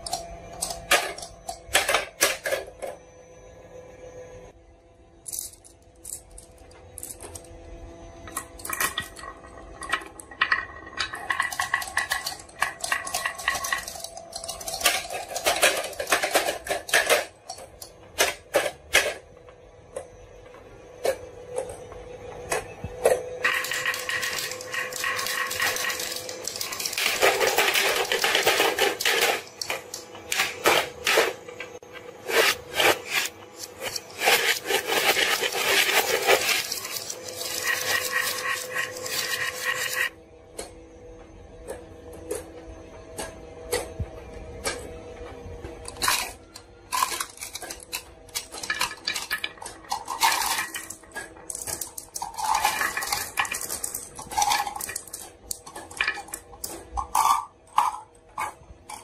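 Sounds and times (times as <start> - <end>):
glass marbles clacking on wooden tracks: 8.3 - 18.8.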